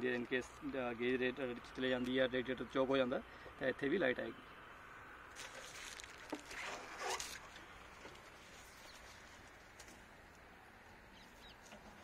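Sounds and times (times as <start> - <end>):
faint bird chirps: 11.1 - 11.7.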